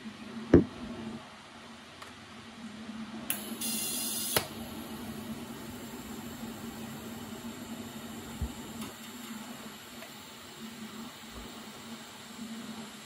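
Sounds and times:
welder humming and hissing: 3.3 - 13.0.

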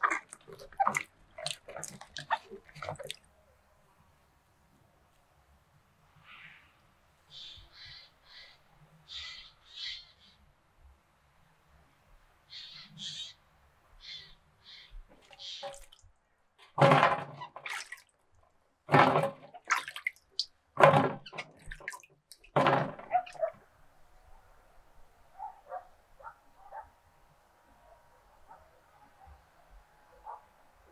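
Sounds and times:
short bird calls: 6.2 - 10.4, 12.5 - 13.4, 14.0 - 15.9.

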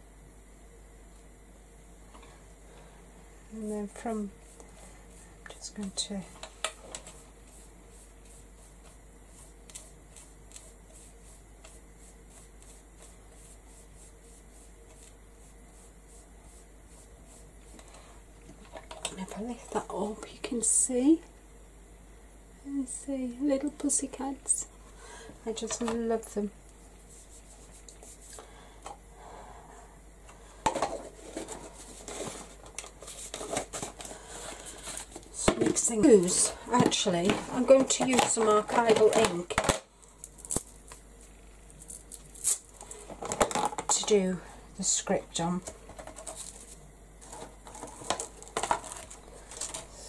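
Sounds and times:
brush swishing and dabbing: 7.0 - 17.8, 27.0 - 28.4.

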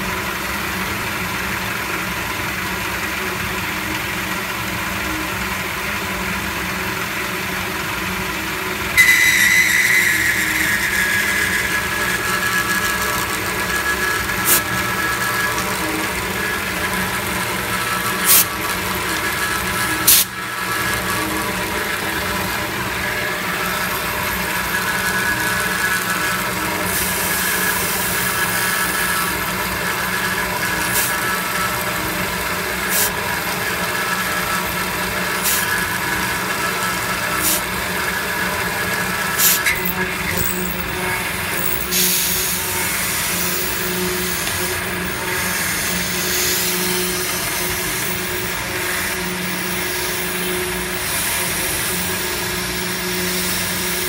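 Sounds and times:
milling machine whine: 0.0 - 54.0
spindle hum: 8.9 - 51.0
hiss of coolant spray: 32.9 - 33.1, 37.4 - 37.6, 41.9 - 43.7.

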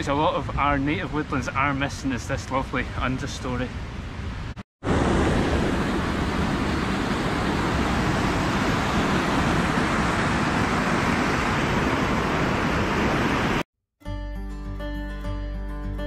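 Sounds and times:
water rushing over rocks: 4.8 - 13.6.

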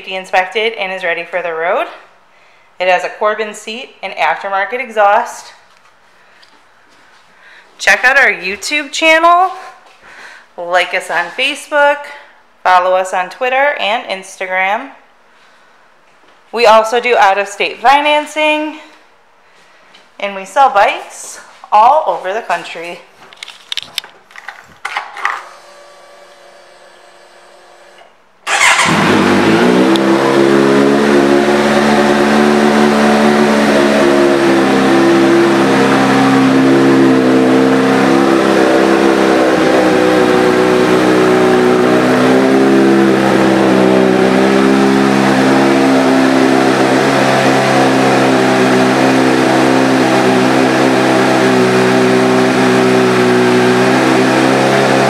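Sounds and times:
faint electrical hum: 0.0 - 28.5.

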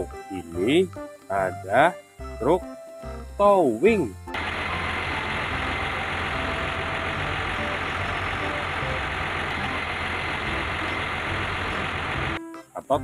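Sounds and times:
truck engine idling: 4.3 - 12.4.

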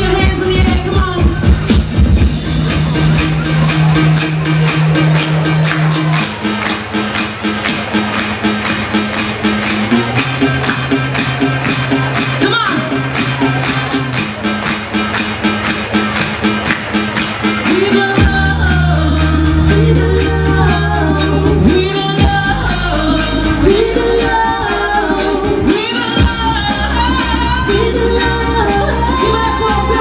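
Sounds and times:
drum beat: 0.0 - 28.0
deep bass notes: 0.0 - 30.0
women singing: 17.7 - 30.0.

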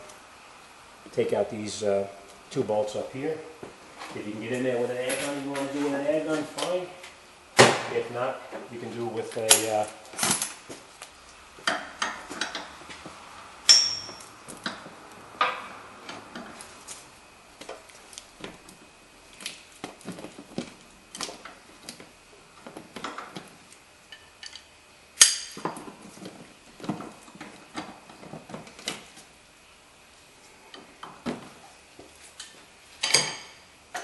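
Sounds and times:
ringing metal clanks: 13.7 - 14.3.

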